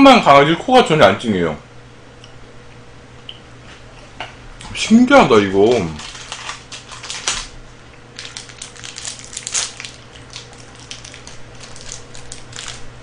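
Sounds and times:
plastic wrapper crackling: 5.5 - 7.6, 8.2 - 13.0
crunching of chocolate wafer: 5.6 - 7.6, 8.2 - 12.9.

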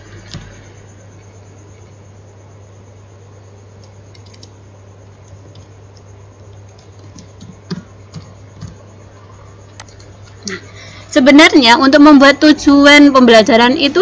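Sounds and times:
steady low hum: 0.0 - 14.0
keyboard keys clicking: 3.8 - 4.6, 6.7 - 8.8.

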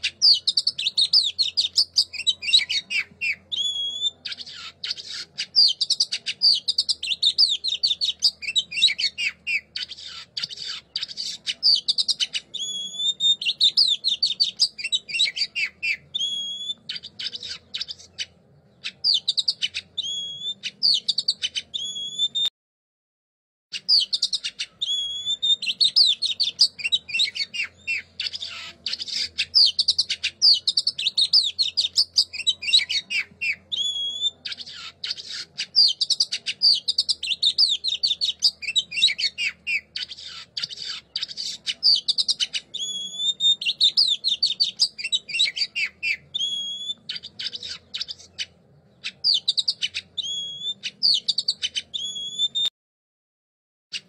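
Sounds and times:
songbird chirping and trilling: 0.0 - 22.5, 23.7 - 52.7.

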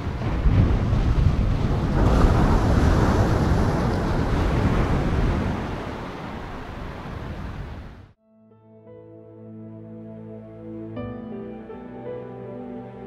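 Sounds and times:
ocean surf rushing: 0.0 - 8.2.

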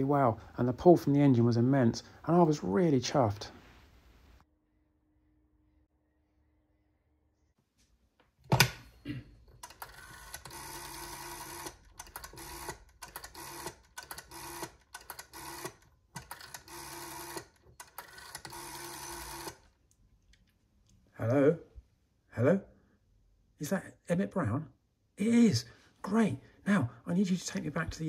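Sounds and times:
rotary dial whirring: 9.5 - 19.7.

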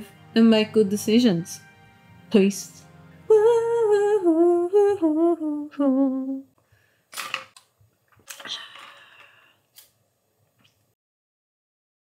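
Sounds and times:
woman humming: 3.3 - 6.5.

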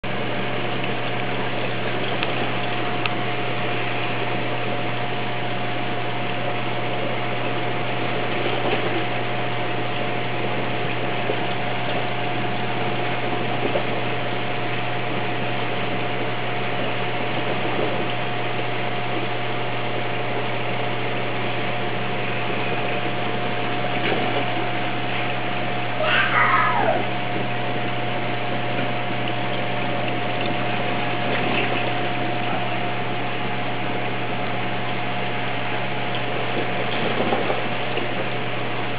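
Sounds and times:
low pump hum: 0.0 - 38.9
water rushing: 24.2 - 38.0.

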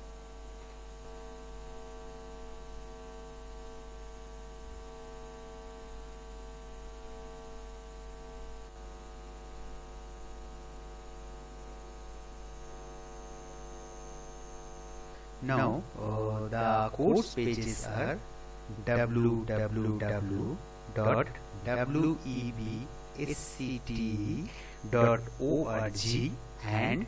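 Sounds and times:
electrical mains hum: 0.0 - 27.0.

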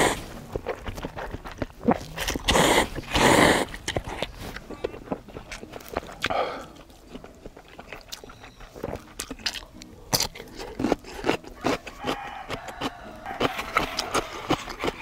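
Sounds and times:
mouth clicks and smacks: 0.0 - 15.0
person chewing noodles: 0.0 - 15.0.

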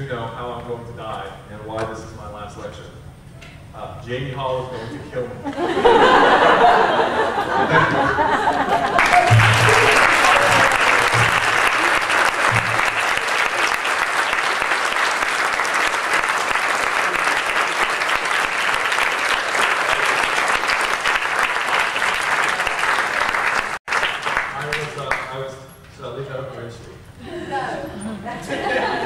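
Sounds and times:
audience applauding: 8.2 - 25.4.

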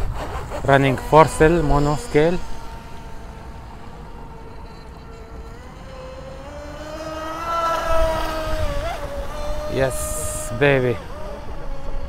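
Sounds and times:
electric motor whine: 0.0 - 12.0.

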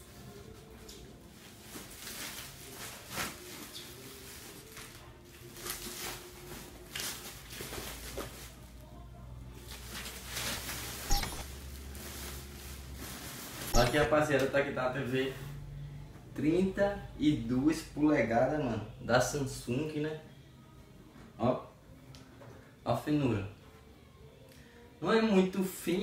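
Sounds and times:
plastic wrap crinkling: 1.4 - 8.8, 9.6 - 14.0.

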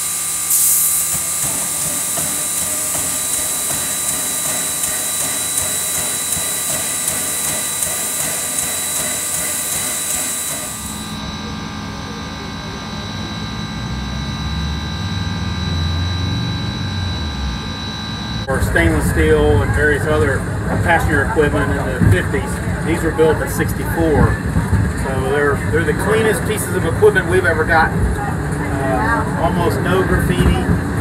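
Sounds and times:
steam locomotive venting steam: 0.0 - 11.1.

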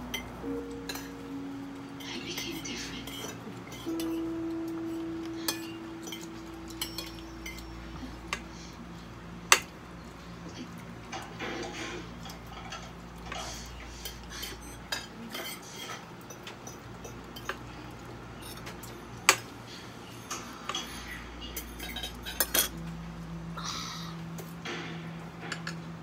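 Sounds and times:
cutlery clinking on plates: 3.1 - 7.7, 11.2 - 17.6, 20.2 - 22.8.

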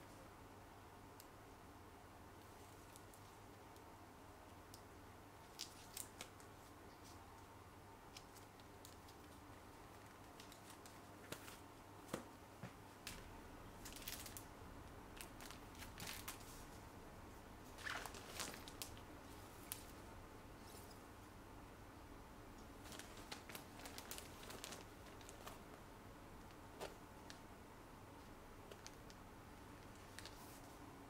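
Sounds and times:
plastic sleeves rustling: 5.4 - 7.2, 8.1 - 12.3, 13.0 - 14.5, 15.1 - 16.8, 17.7 - 21.0, 22.8 - 27.4, 28.2 - 29.2, 29.8 - 30.8.

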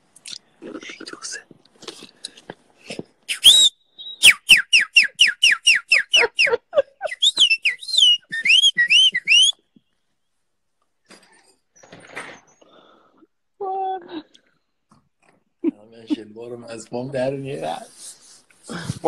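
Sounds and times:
person whistling birdlike notes: 3.3 - 9.7.

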